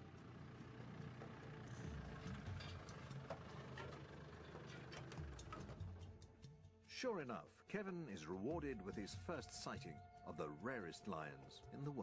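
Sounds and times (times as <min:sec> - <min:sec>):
vehicle engine running low: 0:00.0 - 0:06.2.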